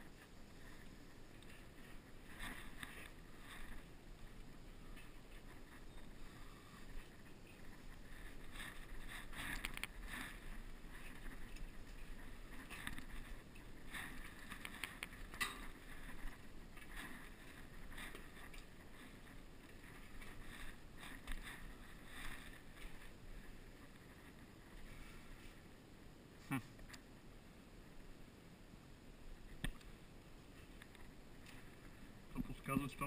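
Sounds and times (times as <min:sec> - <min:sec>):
clothing rustle: 0:00.0 - 0:25.8.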